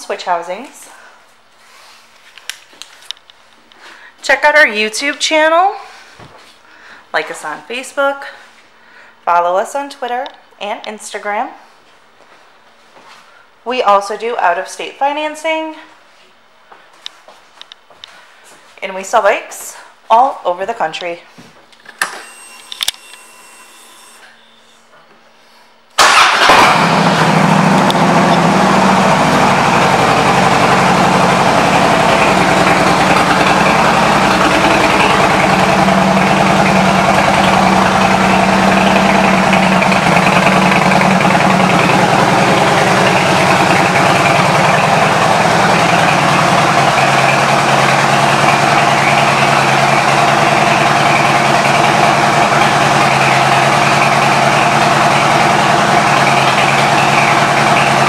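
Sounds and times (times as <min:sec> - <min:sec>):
motorcycle engine idling: 0:26.1 - 0:58.0.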